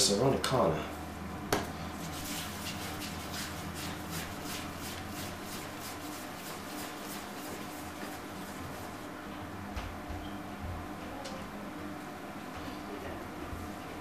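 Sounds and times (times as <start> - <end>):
dough rubbing on work surface: 1.9 - 9.1.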